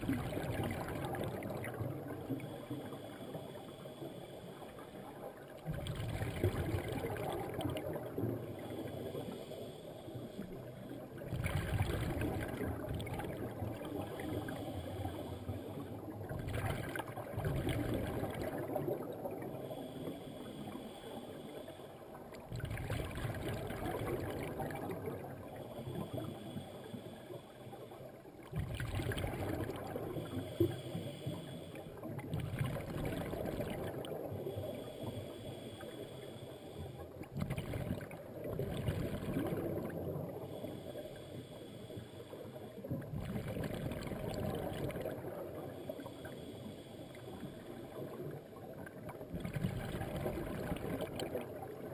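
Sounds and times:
gurgling exhaled bubbles: 0.0 - 3.6, 4.7 - 9.4, 10.4 - 20.9, 22.2 - 27.2, 27.9 - 36.1, 37.0 - 41.9, 42.8 - 51.9
regulator inhale hiss: 2.3 - 5.1, 8.4 - 11.0, 14.2 - 16.0, 19.5 - 22.2, 25.4 - 28.2, 30.0 - 32.1, 34.3 - 37.3, 40.3 - 42.9, 44.2 - 48.6.

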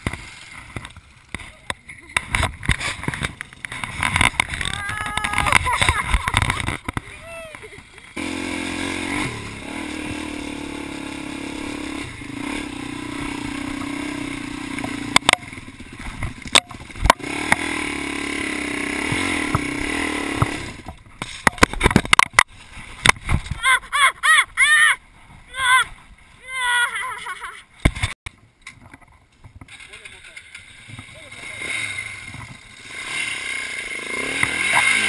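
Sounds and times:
knocks and clatter on rocks: 0.0 - 7.1, 20.4 - 23.6
scrapes: 0.0 - 7.2
dirt bike engine revving: 8.1 - 21.0, 31.2 - 35.0.

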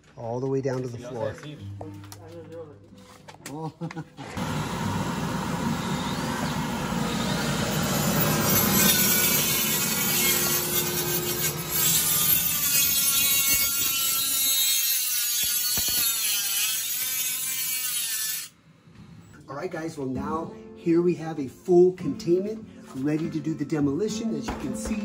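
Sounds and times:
cut-off saw whining: 4.2 - 18.6.

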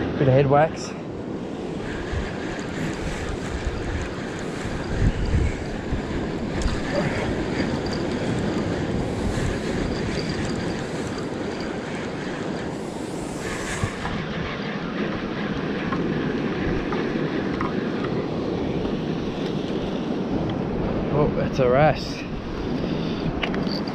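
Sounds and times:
surf washing over rocks: 0.0 - 14.1
wind buffeting microphone: 0.0 - 23.9
fishing reel being cranked: 6.5 - 12.5.

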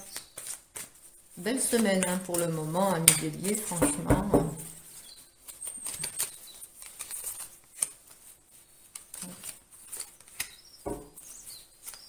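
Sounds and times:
paper cards rustling: 0.0 - 12.0
cards tapping on table: 10.9 - 11.2.

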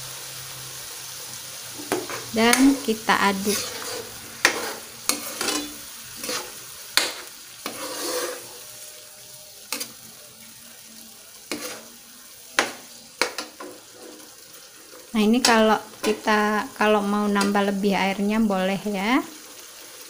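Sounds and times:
sauce sizzling: 0.0 - 20.0
metal spoon scraping pan: 1.8 - 8.7, 9.7 - 10.0, 11.4 - 12.0, 12.6 - 16.3.

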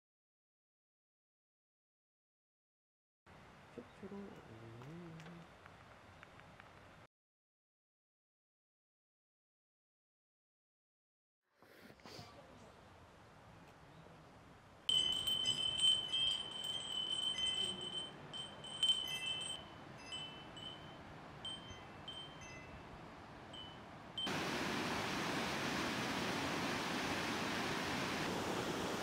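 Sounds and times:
small bells chiming in wind: 14.9 - 24.6
waterfall rushing: 24.3 - 29.0.

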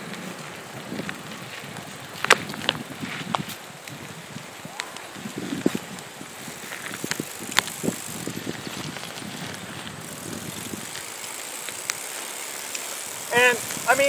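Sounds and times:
tyre and drivetrain noise: 0.0 - 14.0.

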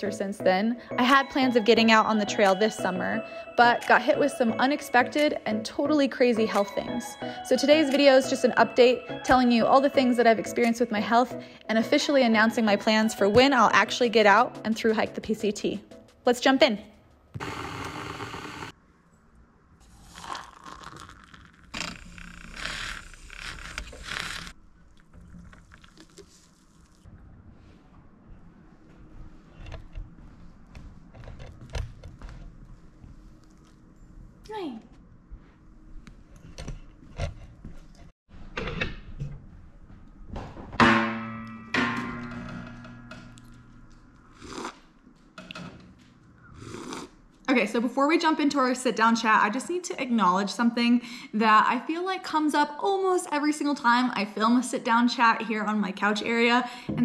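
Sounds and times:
electric kettle boiling: 17.4 - 18.7, 20.1 - 21.5
milk frother whirring: 17.4 - 18.7
liquid splashing and swishing: 24.6 - 27.7.

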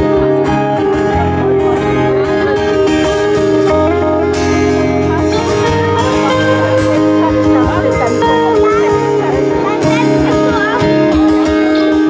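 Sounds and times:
guitar melody: 0.0 - 12.0
live rock band playing: 0.0 - 12.0.

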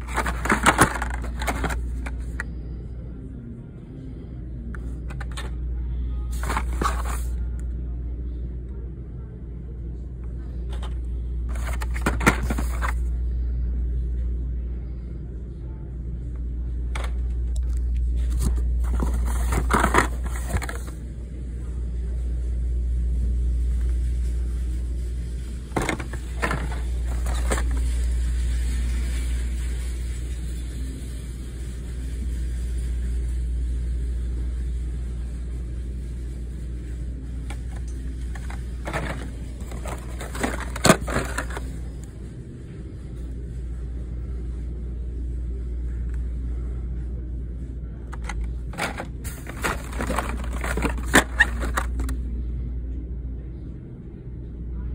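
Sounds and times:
plastic and cardboard crinkling: 0.0 - 2.4, 6.4 - 7.4, 11.5 - 13.0, 18.2 - 20.9, 25.7 - 28.1, 37.6 - 41.8, 48.1 - 52.2.

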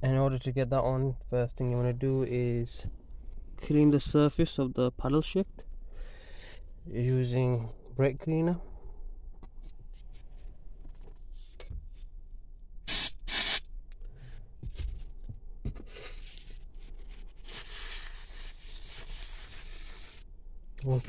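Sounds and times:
aerosol spray hissing: 12.9 - 13.6.

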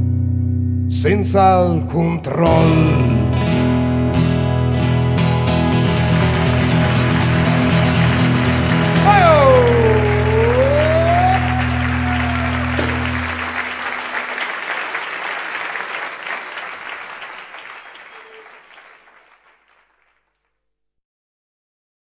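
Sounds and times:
audience applause: 5.7 - 20.2.

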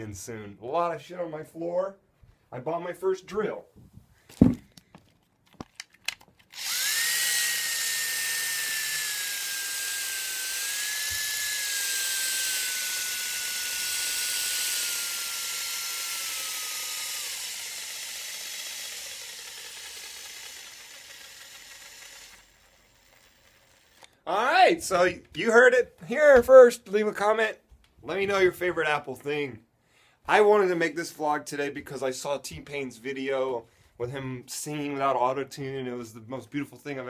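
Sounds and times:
power drill motor whine: 6.5 - 24.2.

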